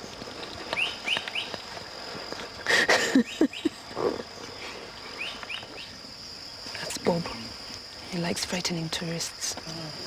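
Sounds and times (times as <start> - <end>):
high insect drone: 0.0 - 10.0
woman laughing: 2.7 - 4.2
birds chirping: 3.2 - 7.5.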